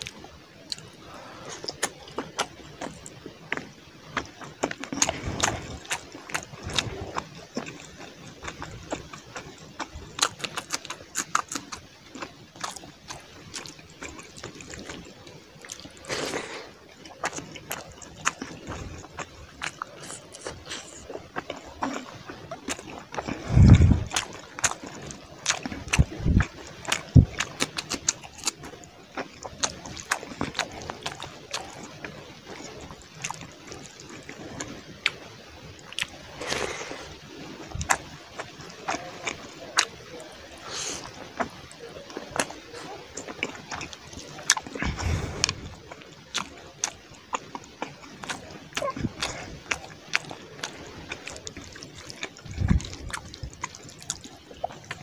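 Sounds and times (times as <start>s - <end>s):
chewing and lip smacks: 0.0s - 55.0s
fingers squishing rice and gravy: 0.0s - 55.0s
rush of noise: 23.3s - 24.2s.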